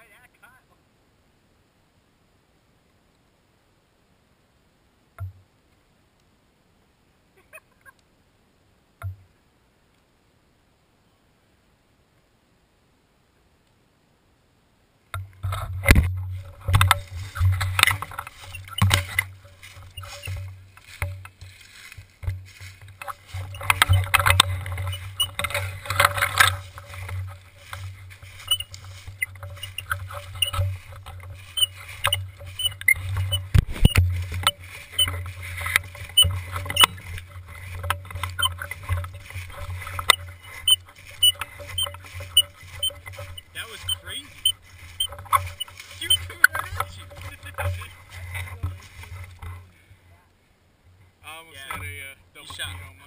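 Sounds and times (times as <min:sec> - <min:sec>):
footsteps crunching dry leaves: 0:15.5 - 0:49.7.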